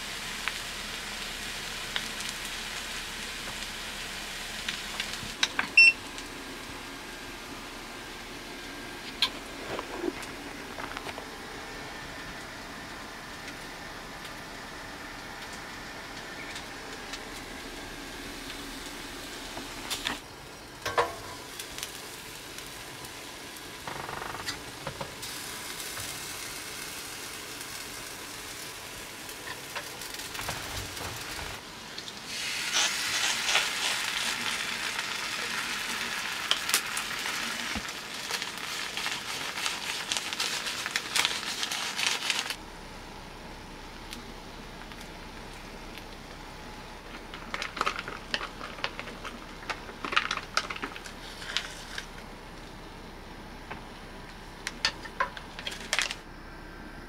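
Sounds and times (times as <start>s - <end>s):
food sizzling on hot plate: 0.0s - 8.3s, 16.8s - 42.6s.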